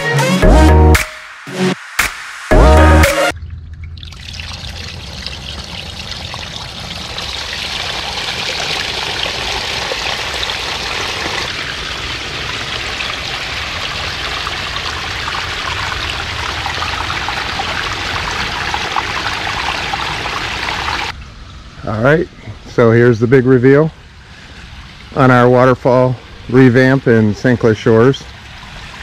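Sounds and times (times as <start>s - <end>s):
waterfall splashing into pond: 3.3s - 21.2s.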